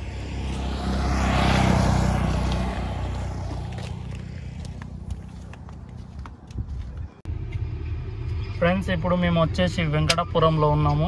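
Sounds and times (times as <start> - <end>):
rush of passing noise: 0.0 - 5.4
car engine and road drone: 0.0 - 11.0.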